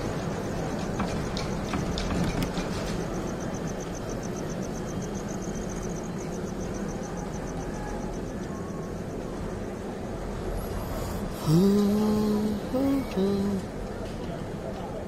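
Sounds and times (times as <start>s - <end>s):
high-pitched pulsing chirr: 8.8s - 13.6s.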